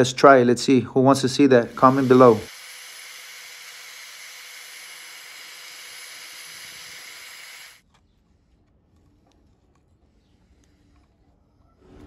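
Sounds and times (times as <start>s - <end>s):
angle grinder grinding rod: 1.0s - 7.8s.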